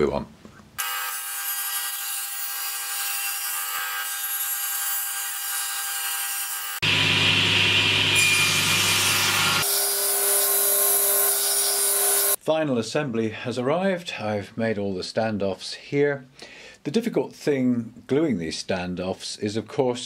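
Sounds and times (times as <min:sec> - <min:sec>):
table saw cutting wood: 0:00.8 - 0:12.4.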